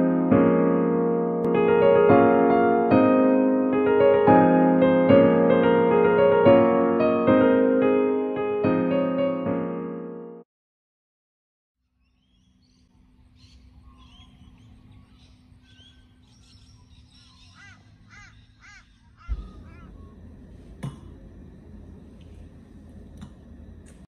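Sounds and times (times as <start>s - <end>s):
birds chirping: 11.9s - 20.6s
loud arching bird calls: 12.1s - 20.3s
indoor room tone: 12.5s - 24.0s.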